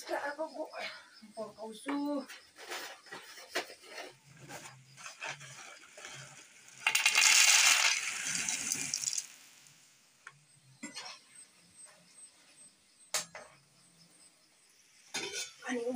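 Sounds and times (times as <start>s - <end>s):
dry pasta clattering onto plate: 6.8s - 9.2s.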